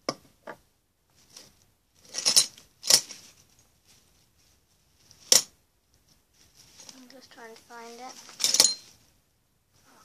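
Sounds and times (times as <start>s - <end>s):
medals clinking: 8.1s - 9.0s.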